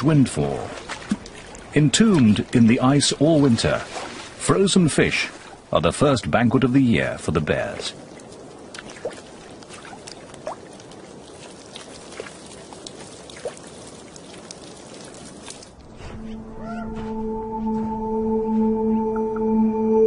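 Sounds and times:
meltwater trickling and dripping: 0.0s - 5.8s, 6.9s - 15.9s
ambient music with held tones: 15.9s - 20.0s.

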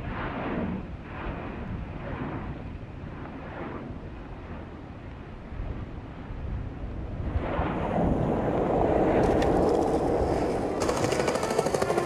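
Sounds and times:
skateboard wheels rolling on pavement: 8.9s - 12.0s.

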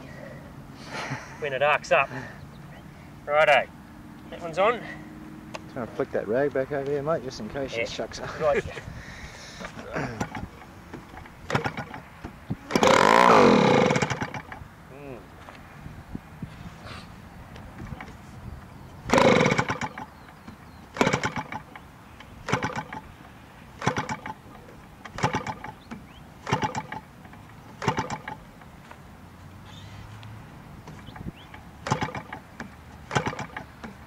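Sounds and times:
two-stroke model engine firing: 11.2s - 12.0s, 12.7s - 14.6s, 19.1s - 20.1s, 20.9s - 21.8s, 22.4s - 23.1s, 23.8s - 24.4s, 25.1s - 25.8s, 26.4s - 27.1s, 27.8s - 28.4s, 31.8s - 32.4s, 33.1s - 33.7s.

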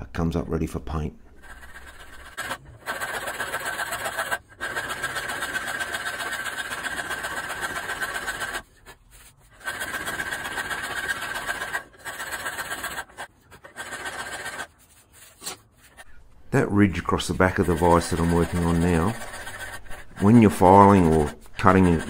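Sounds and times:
polishing machine grinding metal: 17.0s - 22.0s.

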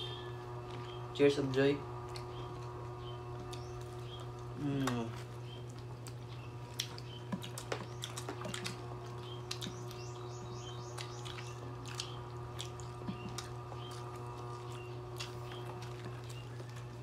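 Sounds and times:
steady low hum: 0.0s - 17.0s
people chewing crispy food: 1.9s - 17.0s
lip smacks and wet clicks: 2.0s - 2.6s, 3.4s - 10.2s, 10.8s - 17.0s.

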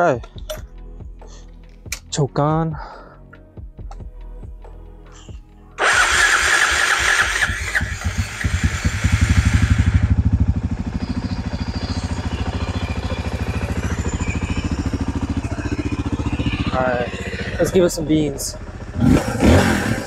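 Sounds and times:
electric starter cranking: 5.8s - 10.1s
motorcycle engine idling: 5.8s - 20.0s.

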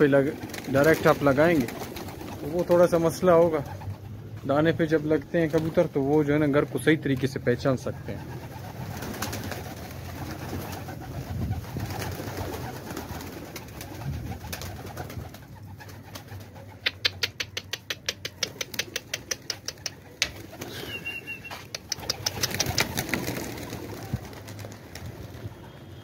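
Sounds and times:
pigeons cooing: 8.0s - 24.6s
rapid sharp clicks: 16.8s - 20.5s, 21.7s - 23.4s.

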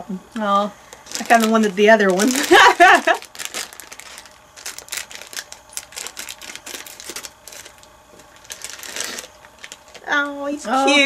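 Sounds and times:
packaging crackling and rustling: 0.9s - 10.3s
scissors snipping packet: 1.0s - 7.8s.

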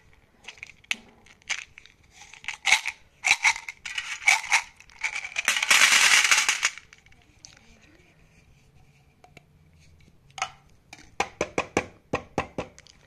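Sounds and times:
candies clattering into metal tin: 0.4s - 7.2s.

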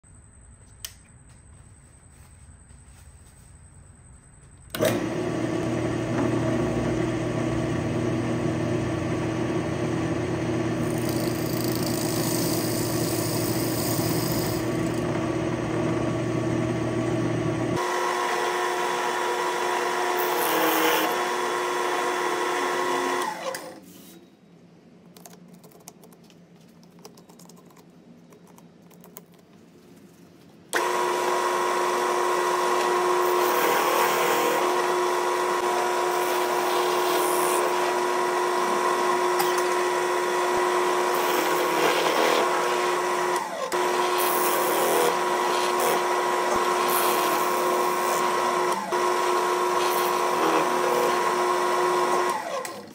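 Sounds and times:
drill press motor whine: 4.7s - 23.8s, 30.8s - 52.9s
drill bit cutting wood: 4.8s - 23.6s, 30.8s - 52.9s.

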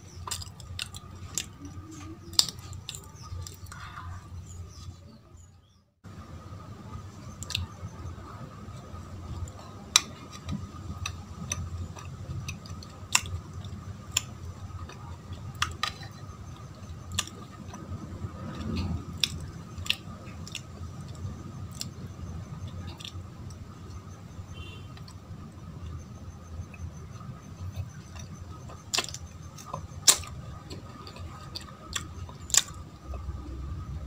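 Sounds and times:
chewing soft sweets: 0.0s - 5.0s, 6.1s - 34.0s
steady low hum: 0.0s - 34.0s
faint high whine: 10.6s - 34.0s.

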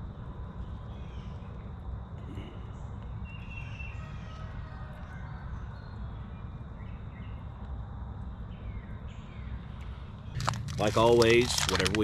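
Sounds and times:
low outdoor rumble: 0.0s - 12.0s
faint bird chirps: 0.5s - 7.7s.

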